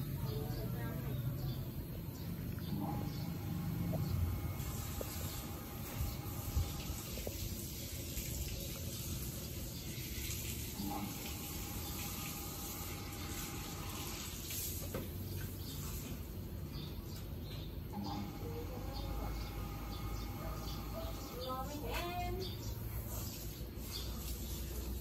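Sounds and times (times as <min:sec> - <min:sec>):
hose water splashing: 0:03.5 - 0:16.5, 0:21.0 - 0:25.0.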